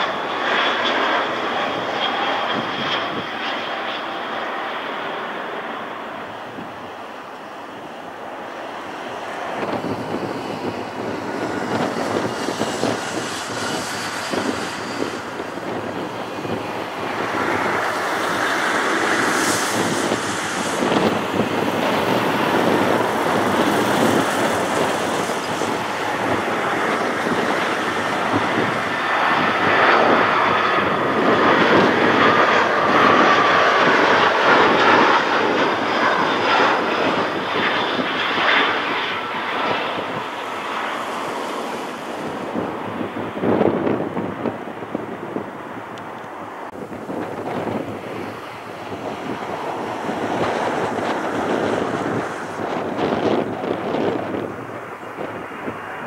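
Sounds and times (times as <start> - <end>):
jet airliner rushing noise: 0.0 - 56.0.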